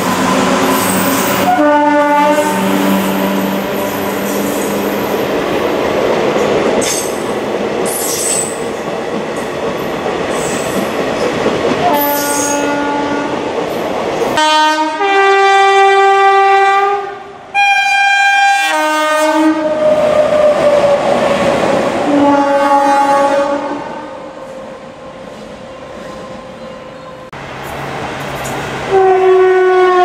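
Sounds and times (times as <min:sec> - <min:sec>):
locomotive horn blast: 0:00.1 - 0:04.8, 0:11.8 - 0:13.4, 0:14.4 - 0:19.9, 0:22.1 - 0:24.4, 0:28.9 - 0:30.0.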